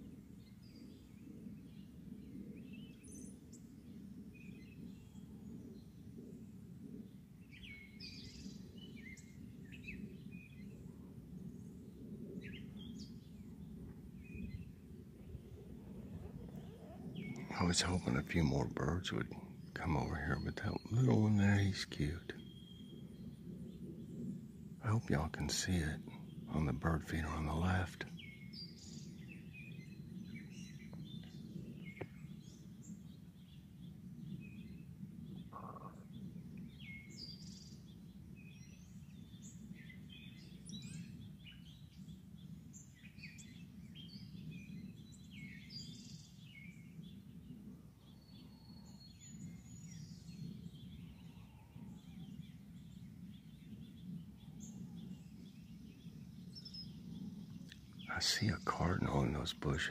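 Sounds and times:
songbirds chirping: 0.0 - 59.9
low background rumble: 9.0 - 36.8.

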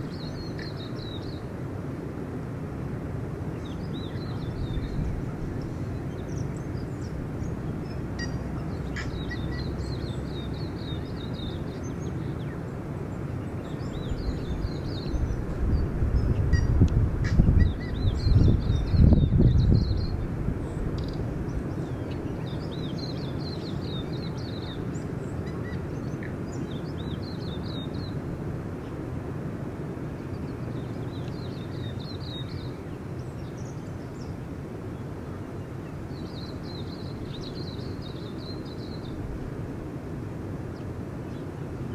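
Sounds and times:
small birds chirping: 0.0 - 1.5, 3.5 - 28.2, 30.1 - 39.3
distant surf breaking: 0.0 - 41.9.

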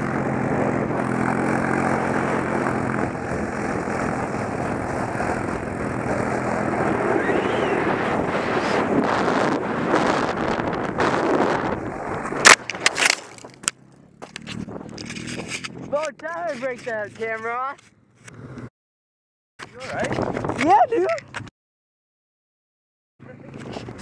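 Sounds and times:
atv engine running: 0.0 - 12.4, 13.4 - 18.7
rushing snow and wind noise: 0.0 - 13.7.

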